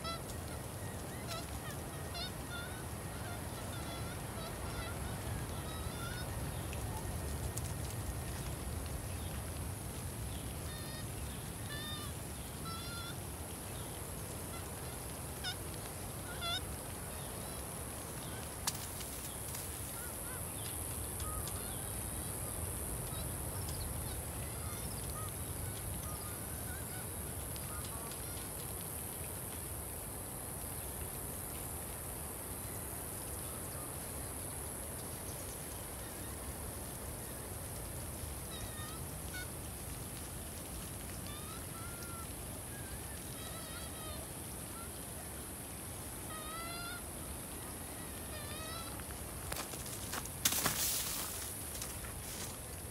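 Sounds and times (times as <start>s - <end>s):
steady high-pitched hiss: 0.0s - 52.9s.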